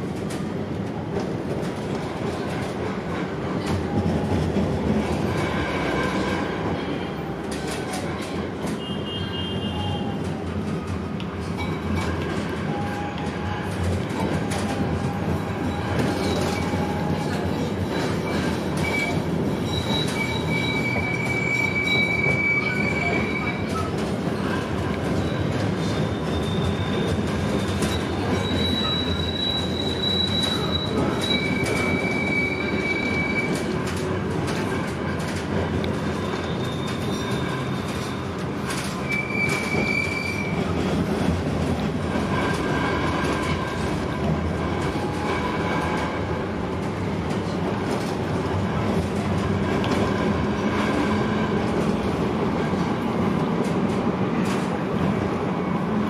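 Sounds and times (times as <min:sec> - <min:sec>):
tram wheels rumbling on rails: 0:00.0 - 0:56.0
high-pitched wheel squeal: 0:15.0 - 0:24.6, 0:25.2 - 0:33.7, 0:36.1 - 0:40.7.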